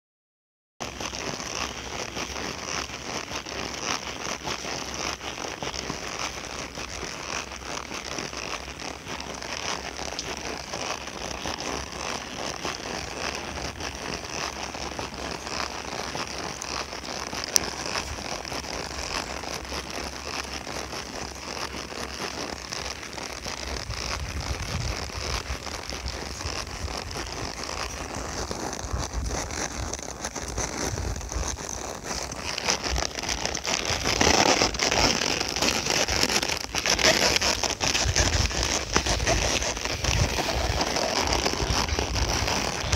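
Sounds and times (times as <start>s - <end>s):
hooves clopping on asphalt: 0.8s - 42.9s
steady crackly noise: 0.8s - 42.9s
wind rumble on microphone: 23.5s - 35.2s, 36.0s - 42.9s.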